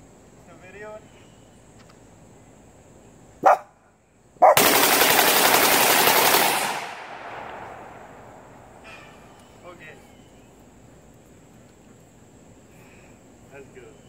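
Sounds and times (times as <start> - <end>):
rifle gunshots: 4.4 - 8.8
rapid burst of gunshots: 4.5 - 8.1.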